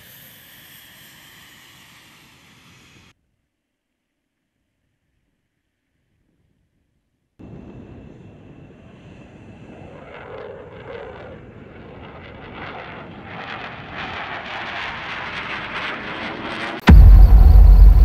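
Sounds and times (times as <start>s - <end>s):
jet engines roaring on takeoff: 7.4s - 18.0s.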